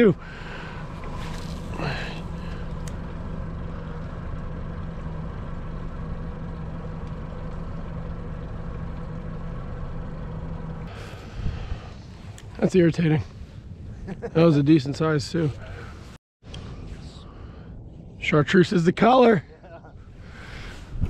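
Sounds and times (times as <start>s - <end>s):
boat motor humming: 0.0s - 14.2s.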